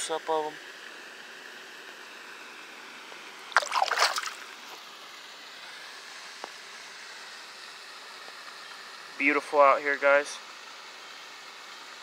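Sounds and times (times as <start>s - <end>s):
faint steady hiss: 0.0s - 12.0s
fish splashing into water: 3.5s - 4.7s.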